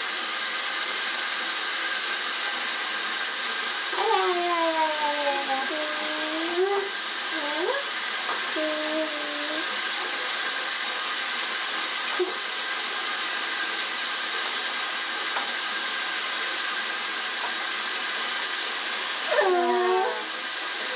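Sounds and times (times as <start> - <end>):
toddler vocal sounds: 4.0 - 9.7, 19.3 - 20.4.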